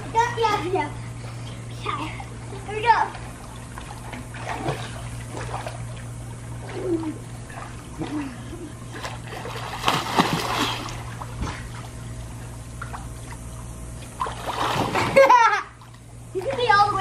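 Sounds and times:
children splashing in pool water: 6.5 - 12.0, 14.1 - 17.0.

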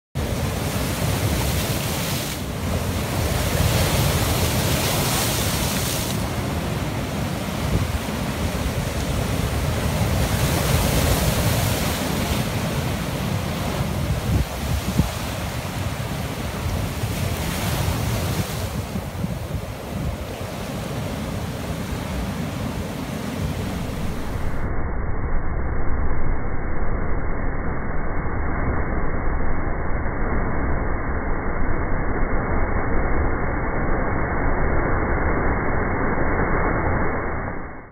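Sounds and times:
waves crashing on rocks: 0.2 - 24.5.

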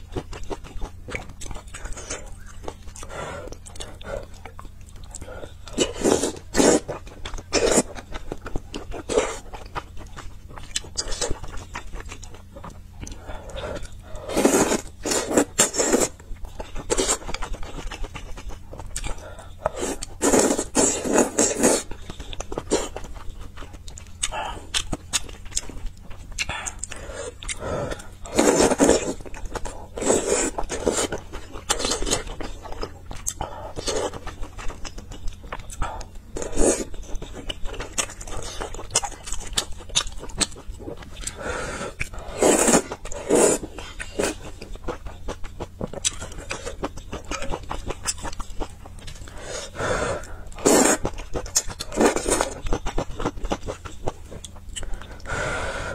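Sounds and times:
person chewing: 0.0 - 55.9
person slurping soup: 41.3 - 43.6.

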